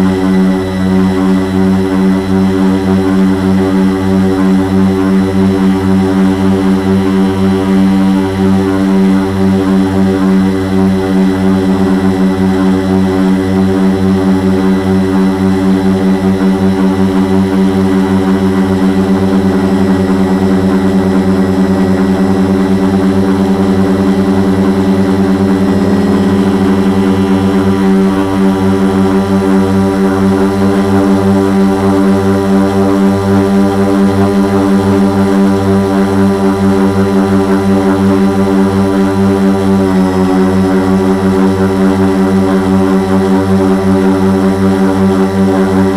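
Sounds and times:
quadcopter motors whining: 18.9 - 30.8.

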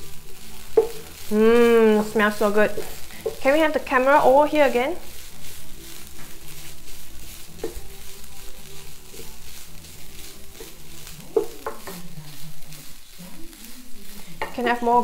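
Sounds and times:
food sizzling in frying pan: 0.0 - 15.0
wooden spatula scraping pan: 0.0 - 15.0.

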